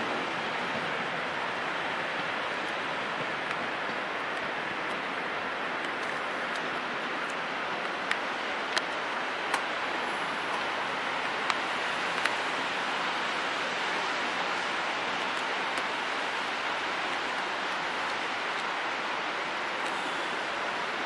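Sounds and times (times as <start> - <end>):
train rolling: 0.0 - 7.7
wheels clicking over rail joints: 0.0 - 12.6.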